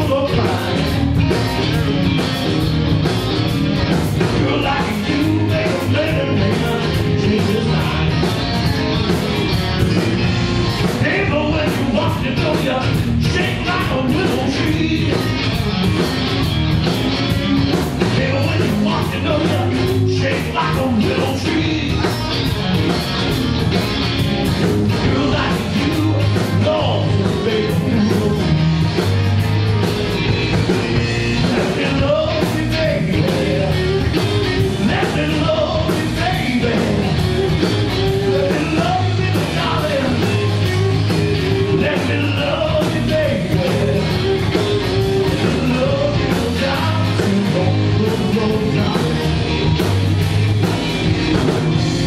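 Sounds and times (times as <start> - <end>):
drum kit beat: 0.0 - 52.0
electric bass guitar: 0.0 - 52.0
electric guitars: 0.0 - 52.0.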